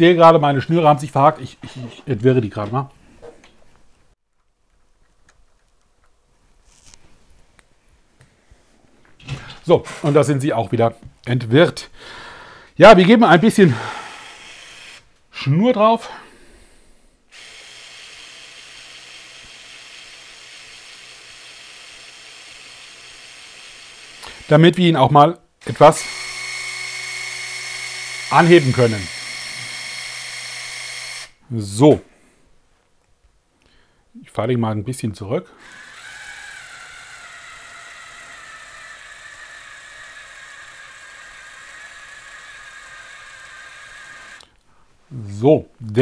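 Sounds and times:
small electric motor running: 13.8 - 15.1, 17.3 - 24.6, 25.6 - 31.4, 35.6 - 44.5.

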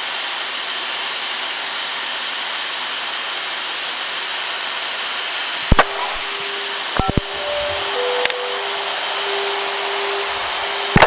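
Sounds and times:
sharp clicks: 5.7 - 6.3, 7.0 - 7.4.

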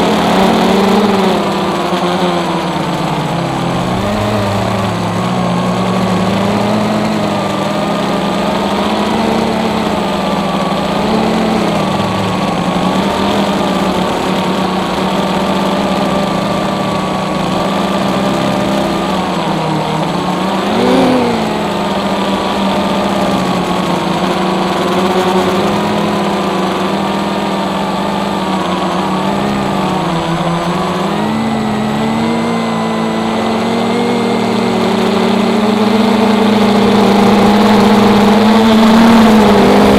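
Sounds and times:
quadcopter motors whining: 0.0 - 39.9.

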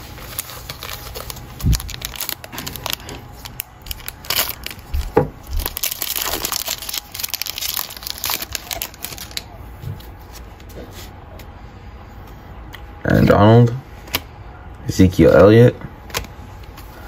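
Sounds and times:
foil card pack crinkling: 0.0 - 9.5.

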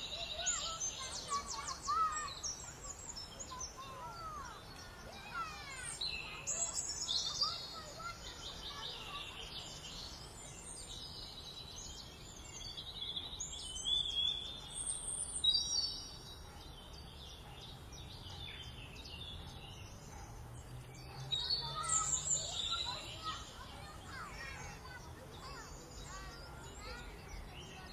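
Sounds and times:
outdoor background hiss: 0.0 - 21.0
small birds chirping: 0.0 - 27.9.

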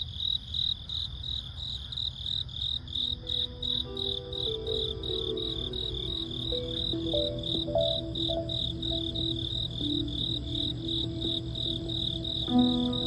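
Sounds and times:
crickets chirping: 0.0 - 13.0
soft music with held notes: 3.0 - 13.0.

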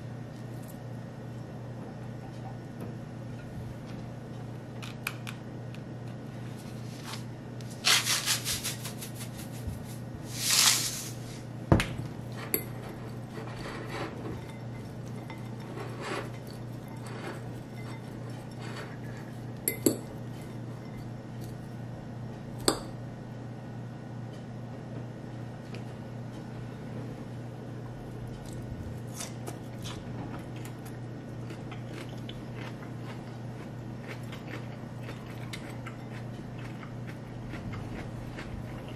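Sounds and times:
steady low hum: 0.0 - 38.9
fork tossing bean sprouts: 6.9 - 11.4
fork clinking ceramic bowl: 14.2 - 19.0, 19.7 - 20.1.

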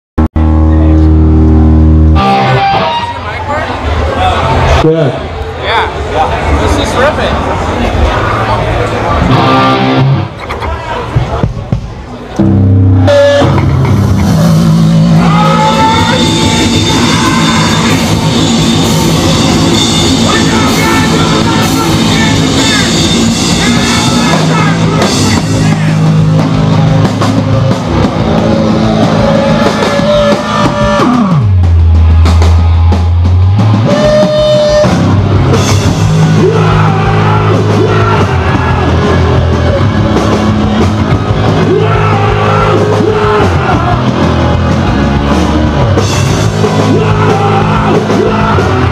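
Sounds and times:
held low bass note: 0.2 - 2.6
punk band playing live: 0.3 - 48.9
screamed vocals: 14.3 - 26.1, 28.6 - 31.5, 36.0 - 39.8, 41.5 - 44.1, 46.5 - 48.9.

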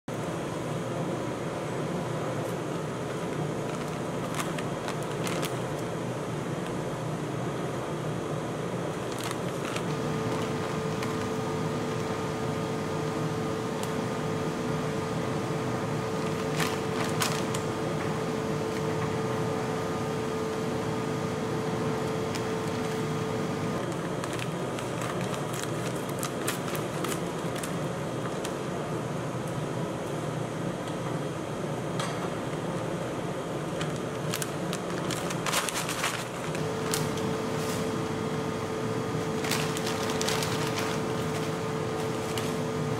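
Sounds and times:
refrigeration unit humming: 0.1 - 42.9
chip bag crinkling: 3.1 - 5.9, 8.9 - 12.3, 16.2 - 17.7, 23.8 - 28.5, 33.7 - 37.9, 39.2 - 42.9.

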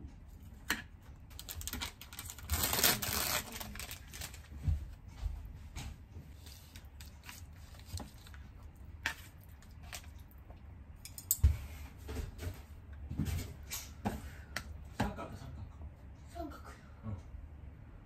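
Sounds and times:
plastic packet crinkling: 1.3 - 4.5
chopsticks clicking and scraping: 6.4 - 11.5.

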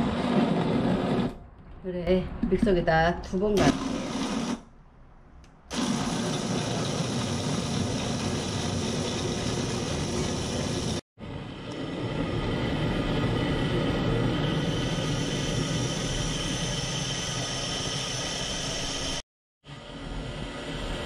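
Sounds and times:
blender grinding: 0.0 - 1.4, 3.6 - 4.6, 5.7 - 11.0.

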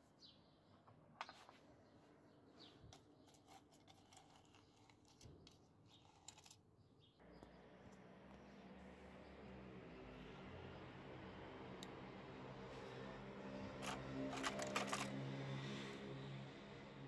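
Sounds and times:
metal rod scraping in crucible: 13.8 - 15.1.

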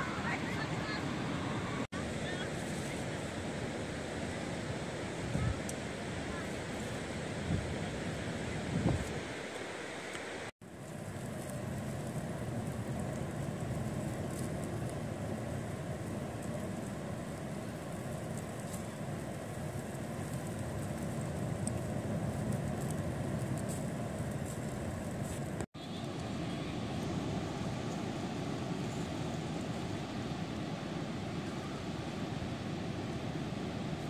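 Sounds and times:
sea surf rumble: 0.0 - 34.0
wind buffeting microphone: 4.6 - 9.4.

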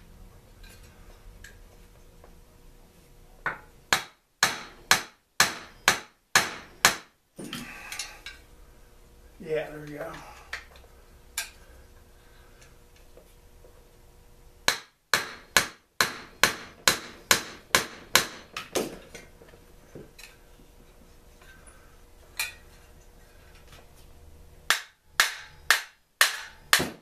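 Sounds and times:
hammer striking metal: 3.5 - 7.1, 14.7 - 18.6, 24.7 - 27.0.

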